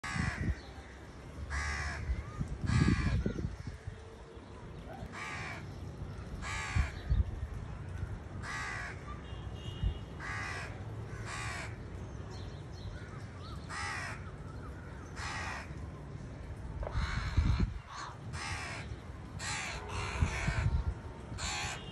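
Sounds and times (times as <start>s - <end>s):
crows cawing: 0.0s - 3.8s, 5.1s - 7.1s, 7.9s - 9.3s, 10.2s - 11.8s, 12.9s - 15.8s, 16.8s - 20.8s, 21.4s - 21.9s.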